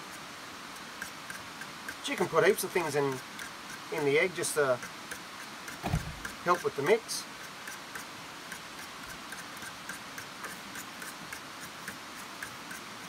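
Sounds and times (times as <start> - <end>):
fork beating eggs in a bowl: 7.4 - 13.0.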